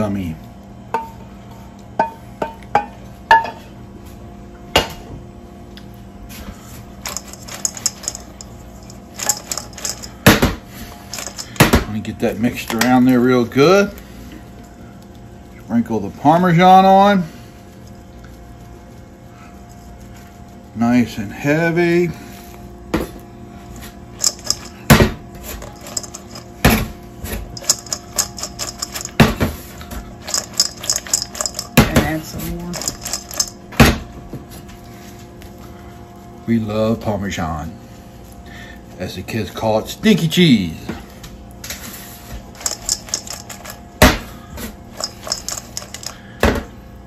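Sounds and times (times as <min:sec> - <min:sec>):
fries clattering in metal bowl: 0:07.0 - 0:12.0, 0:24.2 - 0:33.8, 0:42.5 - 0:44.2, 0:44.9 - 0:46.3.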